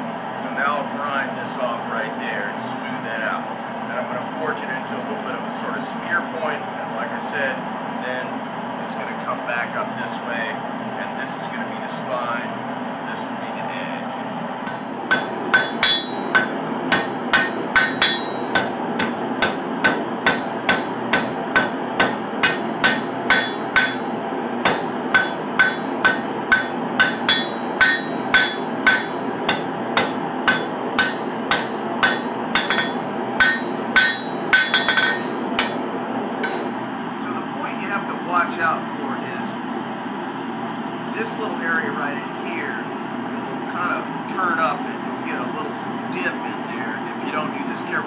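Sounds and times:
steady machinery noise: 14.5 - 37.8
hammer striking blade on anvil: 14.7 - 36.8.

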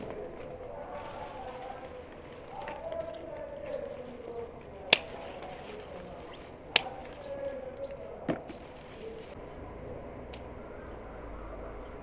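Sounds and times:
sharp clicks: 6.7 - 7.9.

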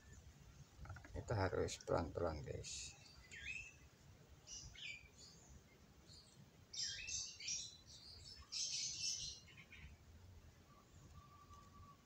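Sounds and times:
bird chirping: 2.8 - 12.0.

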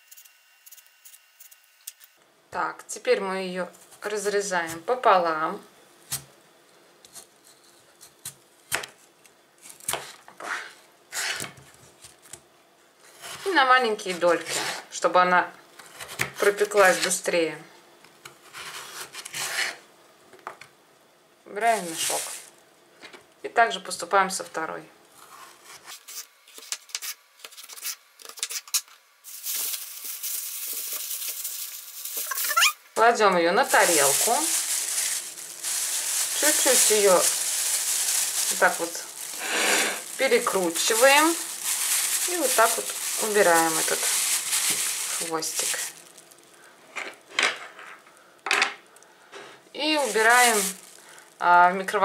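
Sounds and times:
plastic bag crinkling: 21.7 - 22.6, 29.2 - 32.8, 33.5 - 46.7, 49.8 - 52.0.

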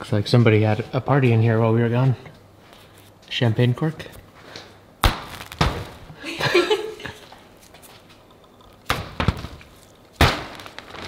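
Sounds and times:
hand slapping plastic sheeting: 8.9 - 11.0.

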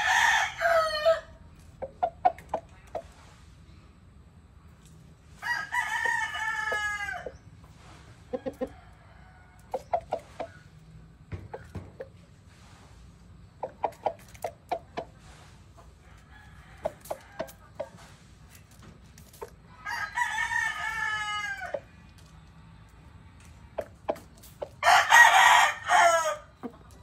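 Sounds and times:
rooster crowing: 0.0 - 1.4, 5.3 - 7.4, 8.4 - 9.8, 16.0 - 17.6, 19.8 - 21.9, 24.8 - 26.6
rooster clucking: 0.0 - 3.5, 5.3 - 22.4, 23.0 - 27.0.

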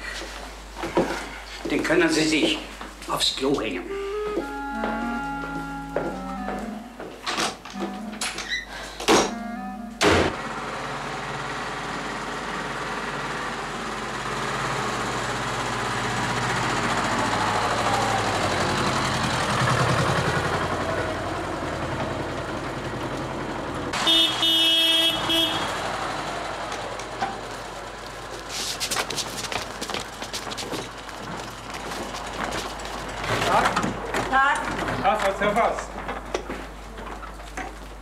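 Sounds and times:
vehicle horn honking: 9.2 - 10.3, 24.0 - 26.2
tractor engine running: 9.3 - 38.0.

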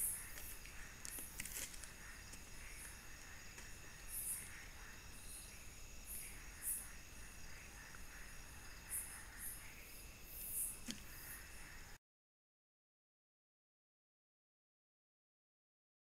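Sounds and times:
crickets droning: 0.0 - 12.0
very high insect chirps: 0.0 - 12.0.

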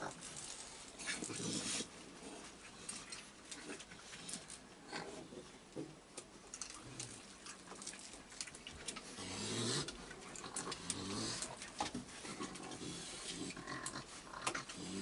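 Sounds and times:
raccoons moving on wooden deck: 0.0 - 15.0
clicks and scratches: 6.2 - 15.0.

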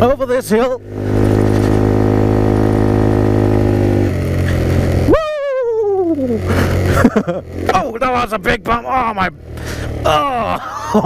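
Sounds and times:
small motorcycle engine: 0.0 - 11.0
rider crying out: 4.4 - 7.9, 9.6 - 11.0.

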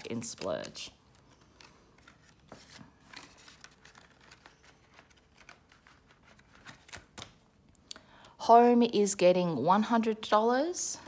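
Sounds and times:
paper rustling: 0.0 - 7.4.

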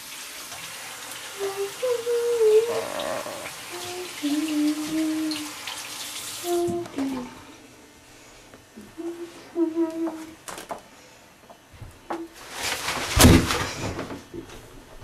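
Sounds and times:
shower water running: 0.0 - 8.1, 8.7 - 10.7, 11.7 - 15.0
person humming: 1.3 - 5.5, 6.4 - 7.6, 8.8 - 10.5.

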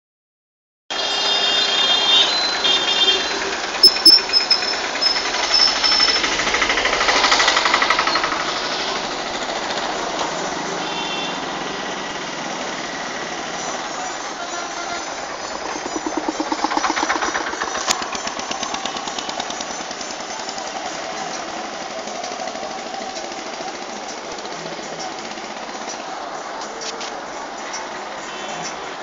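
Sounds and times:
street traffic: 0.9 - 29.0
short high-pitched beeps: 2.3 - 6.2
small engine knocking putter: 3.2 - 10.8, 15.3 - 26.1.

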